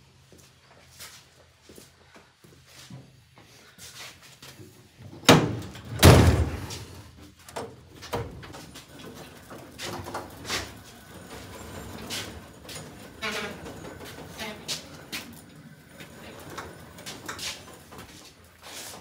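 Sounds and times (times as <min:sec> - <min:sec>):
metal tool chest banging: 0:05.3 - 0:06.8.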